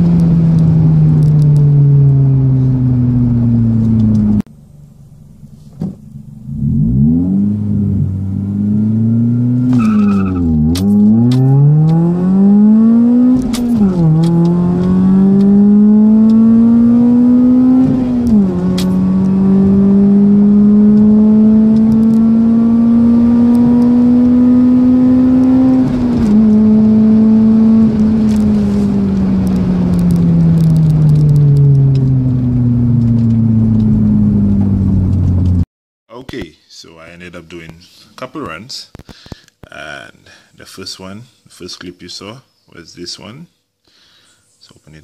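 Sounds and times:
car engine accelerating through gears: 0.0s - 4.5s, 6.2s - 35.6s.

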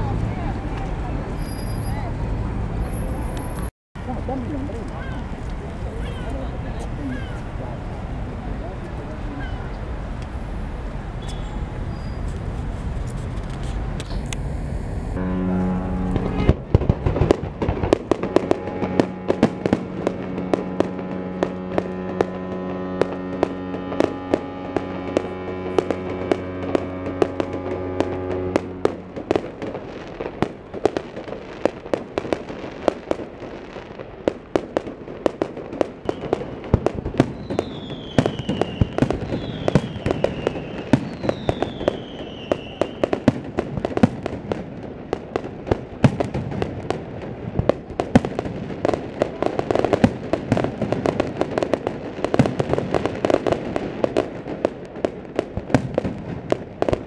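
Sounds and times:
fireworks bangs and crackling: 0.0s - 57.0s
falling firework whistles: 11.2s - 12.4s, 36.1s - 36.6s, 37.2s - 43.3s
deep ship's horn: 14.6s - 16.9s, 17.9s - 29.8s.

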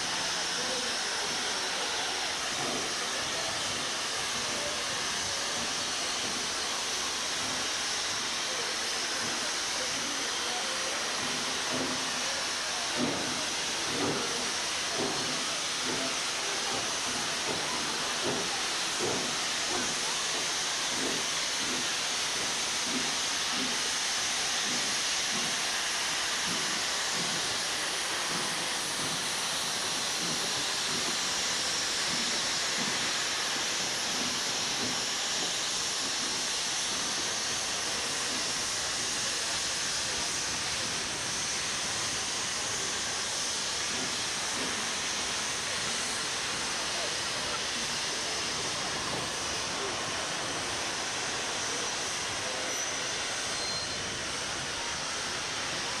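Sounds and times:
steam hissing: 0.0s - 56.0s.

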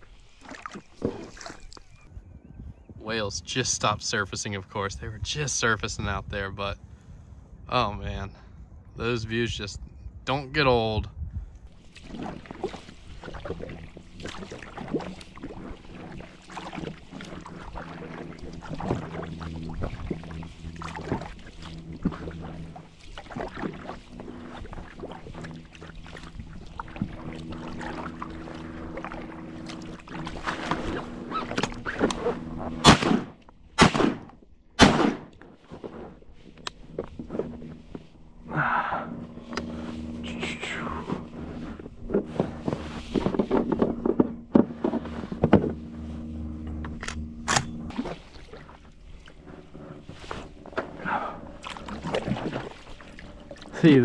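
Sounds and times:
kayak paddling: 0.0s - 2.1s, 11.4s - 33.8s, 35.3s - 54.0s
steady low hum: 0.0s - 54.0s
loud shotgun shots: 32.8s - 35.3s.

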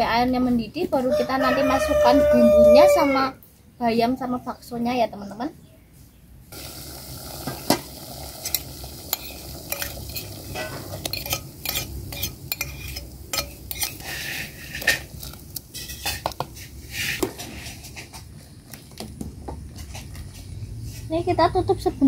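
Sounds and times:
water boiling: 6.5s - 20.2s
spoon scraping and clinking: 8.4s - 16.7s.

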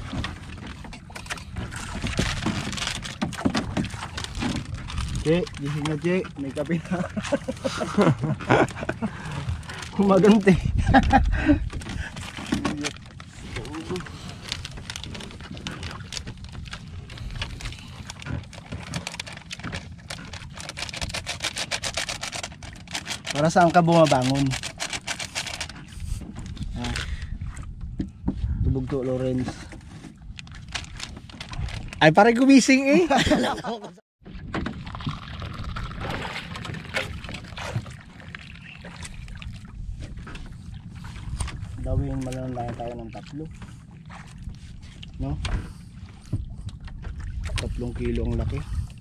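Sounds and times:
sea noise: 0.0s - 28.4s, 29.4s - 49.0s
wind: 0.0s - 49.0s
man laughing: 6.7s - 9.5s, 10.6s - 11.7s, 32.8s - 34.0s.

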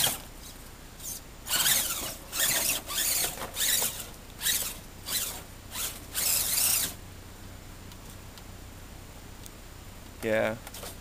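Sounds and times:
electric motor whining: 1.0s - 7.0s.

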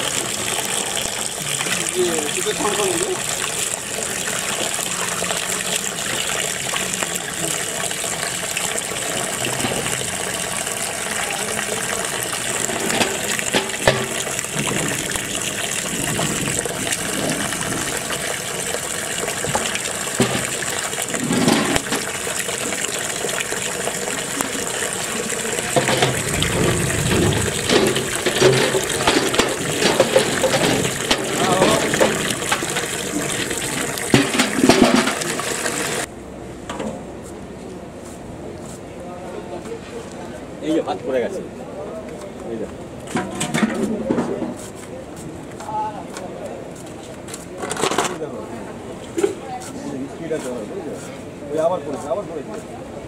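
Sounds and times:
water gushing into a pot: 0.0s - 36.1s
water splashing and sloshing: 0.0s - 36.1s.

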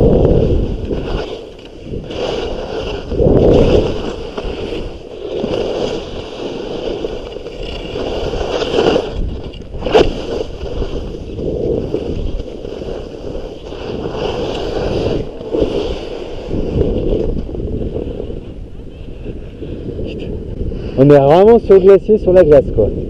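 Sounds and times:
skis scraping over snow: 0.0s - 20.2s.

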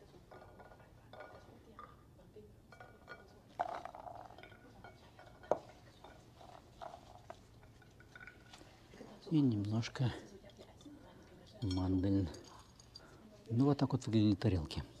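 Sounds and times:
clinks of bowl and china plates: 0.0s - 2.1s, 2.7s - 8.7s, 10.8s - 13.2s.

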